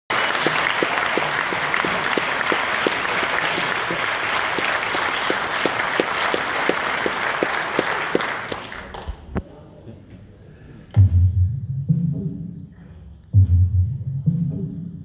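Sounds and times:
audience applauding: 0:00.1 - 0:09.3.

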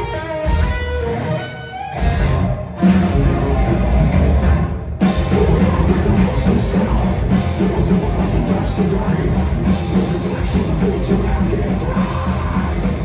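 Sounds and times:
bass guitar: 0:00.0 - 0:13.0
drum kit: 0:00.0 - 0:13.0
electric guitar: 0:00.0 - 0:13.0.

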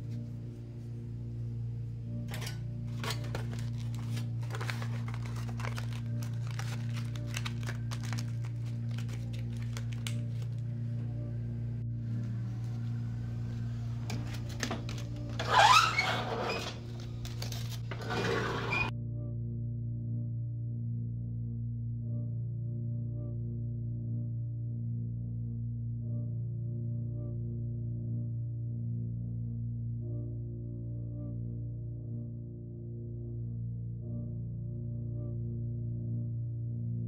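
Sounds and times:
steady low hum: 0:00.0 - 0:15.5
aluminium foil crinkling: 0:02.4 - 0:10.8, 0:16.8 - 0:17.9.

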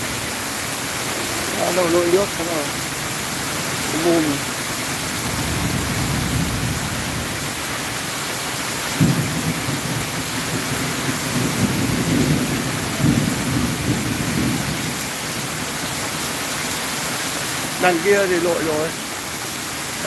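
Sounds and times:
heavy rain hissing on road: 0:00.0 - 0:20.0.

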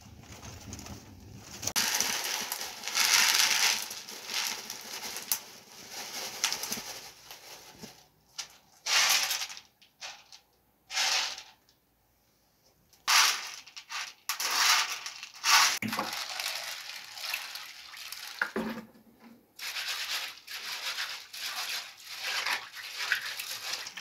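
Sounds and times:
chickpeas rattling on metal plate: 0:01.7 - 0:05.7, 0:08.8 - 0:11.6, 0:13.0 - 0:18.6, 0:19.6 - 0:24.0.

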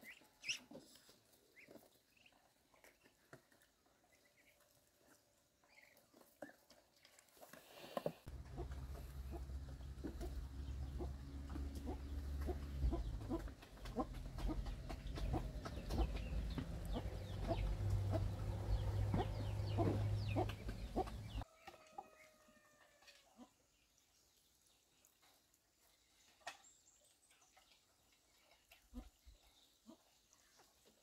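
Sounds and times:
ducks pecking clicks: 0:05.1 - 0:21.4
ducks calling softly: 0:08.3 - 0:21.4
low rumble: 0:08.3 - 0:21.4.

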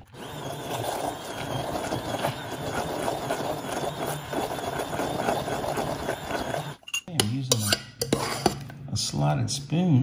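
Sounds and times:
stick blender motor hum: 0:00.0 - 0:06.8
liquid churning: 0:00.0 - 0:06.9.

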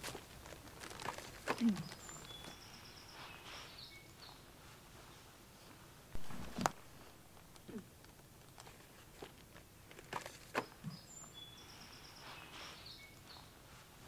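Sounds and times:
faint lake ambience: 0:00.0 - 0:14.0
songbird chirps and trill: 0:01.1 - 0:05.8, 0:10.2 - 0:14.0.

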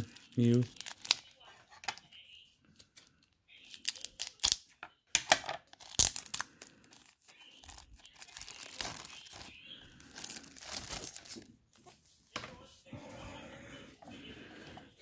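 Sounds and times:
plastic wrap crinkling and tearing: 0:00.0 - 0:01.4, 0:03.6 - 0:04.7, 0:05.7 - 0:11.6.

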